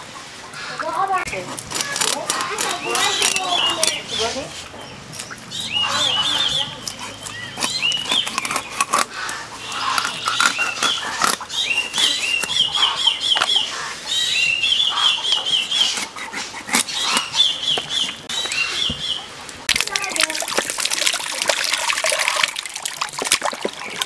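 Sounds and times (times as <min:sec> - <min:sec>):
blade cutting fish: 0:06.3 - 0:12.5, 0:15.6 - 0:17.8.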